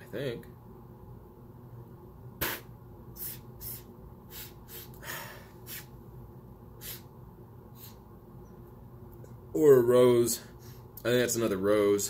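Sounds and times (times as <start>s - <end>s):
person sniffing: 2.4s - 6.0s, 6.8s - 7.1s, 7.7s - 8.0s.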